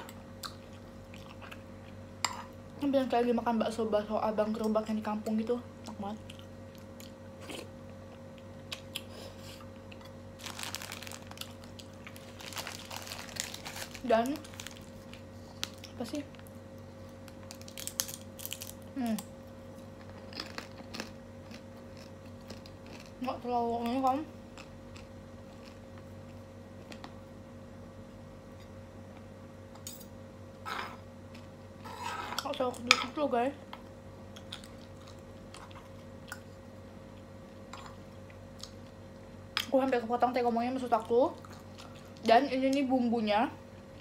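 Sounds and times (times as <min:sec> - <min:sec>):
steady low hum: 0:00.0 - 0:44.0
plastic bag crinkling: 0:10.4 - 0:16.5, 0:17.2 - 0:18.8
faint chewing: 0:24.5 - 0:27.2, 0:33.7 - 0:39.0.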